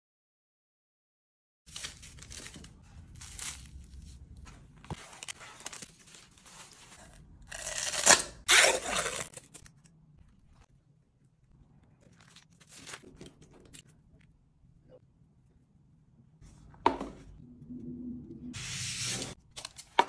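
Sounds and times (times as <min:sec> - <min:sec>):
plastic wrapping crinkling: 0:01.7 - 0:07.2
foil seal tearing: 0:06.8 - 0:09.8.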